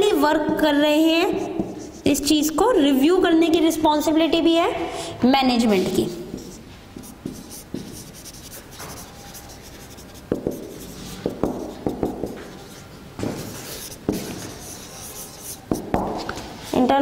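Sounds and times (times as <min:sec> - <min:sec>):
marker scraping on whiteboard: 0:00.0 - 0:02.9, 0:05.6 - 0:17.0
marker tip tapping: 0:11.3 - 0:12.4.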